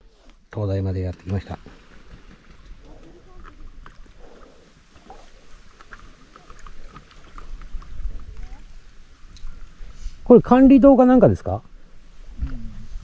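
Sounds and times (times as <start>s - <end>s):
paddle splashing water: 0.0s - 10.3s
water lapping at board: 1.0s - 10.2s.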